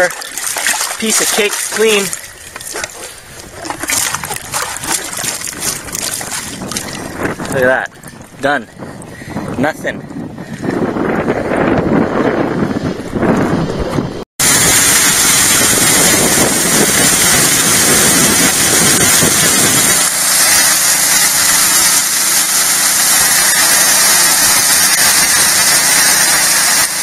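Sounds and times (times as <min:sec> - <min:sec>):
water rushing: 0:00.0 - 0:09.7
water pump engine running: 0:00.0 - 0:11.6, 0:14.4 - 0:27.0.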